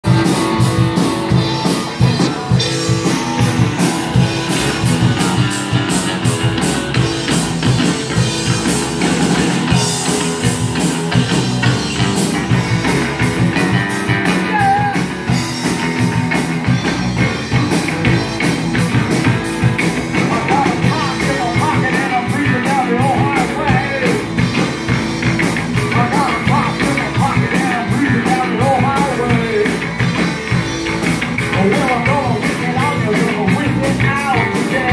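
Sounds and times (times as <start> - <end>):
bass guitar: 0.0 - 34.9
drum kit with cymbal hits: 0.0 - 34.9
electric guitar: 0.0 - 34.9
person singing: 1.3 - 5.8, 14.2 - 16.1, 20.2 - 24.4, 25.8 - 29.9, 31.4 - 34.9.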